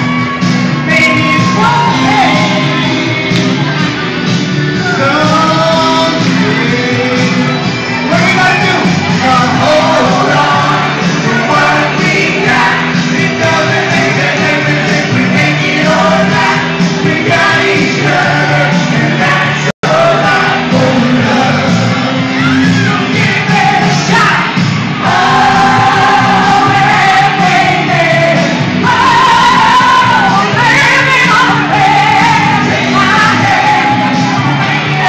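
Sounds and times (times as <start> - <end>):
man and woman singing a duet: 0.8 - 3.5, 4.8 - 35.0.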